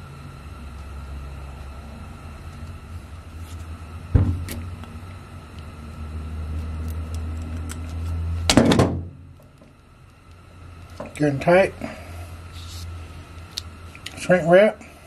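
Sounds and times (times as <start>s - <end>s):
low hum: 0.0s - 14.2s.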